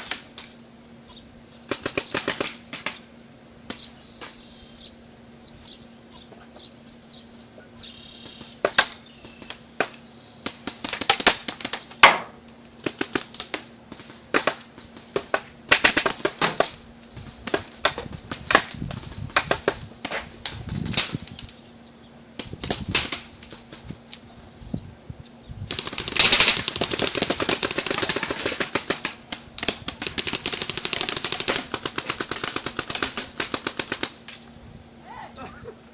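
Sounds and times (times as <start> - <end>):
paintball markers firing: 1.7 - 3.0, 8.3 - 16.8, 25.7 - 34.4.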